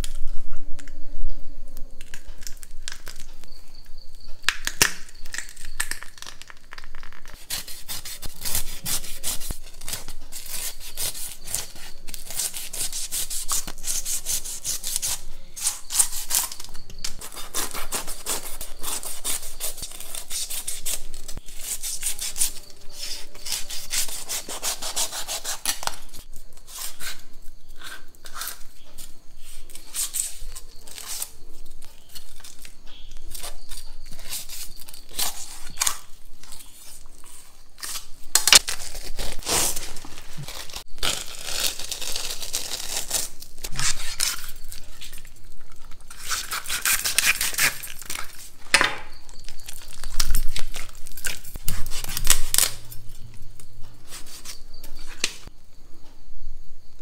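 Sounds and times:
knife scraping fish scales: 7.2s - 31.4s, 46.1s - 48.5s, 49.4s - 52.8s, 54.0s - 55.1s.

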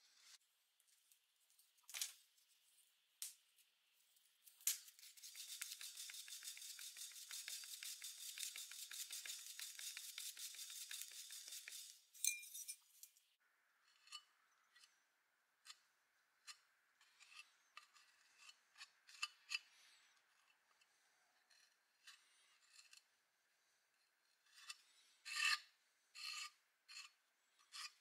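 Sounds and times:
blade scraping metal toy: 4.9s - 12.8s, 24.4s - 28.0s
metal scraper blade scraping: 5.0s - 12.8s, 16.4s - 20.6s, 21.4s - 23.1s, 24.4s - 28.0s.

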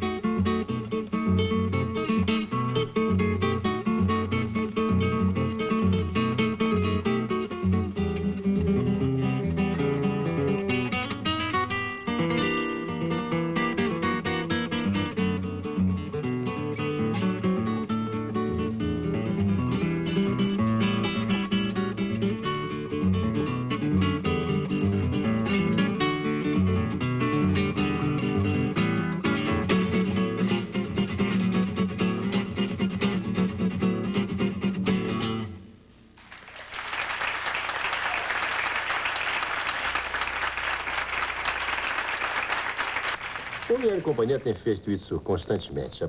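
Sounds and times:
classical guitar plucked runs: 0.0s - 36.4s
audience applauding: 36.2s - 44.6s.

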